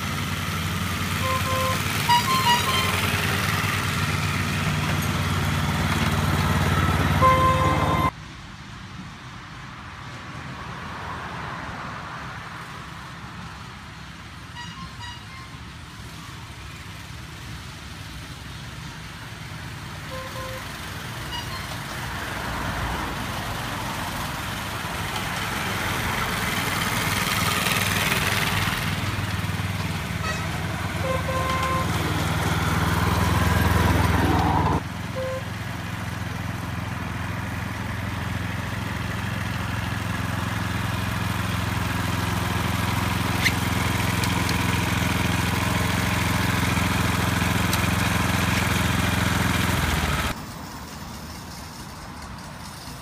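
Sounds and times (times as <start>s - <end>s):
small engine running: 0.0s - 8.1s, 24.4s - 53.0s.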